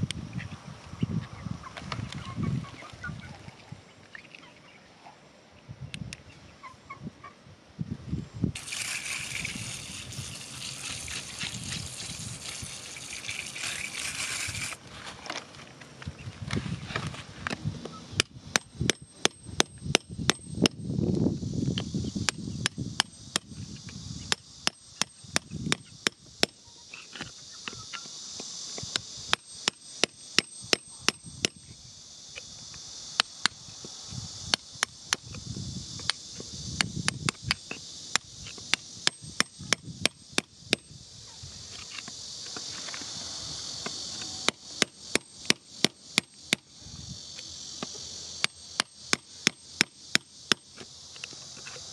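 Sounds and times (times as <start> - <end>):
insects chirring: 0.0 - 51.9
metal tool scraping stony soil: 8.6 - 15.4.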